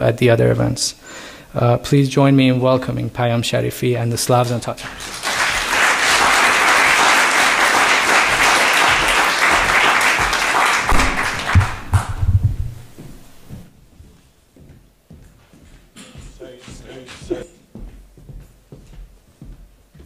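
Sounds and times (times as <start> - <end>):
audience applauding: 4.6 - 12.5, 16.4 - 17.4
low knocks: 10.8 - 13.7.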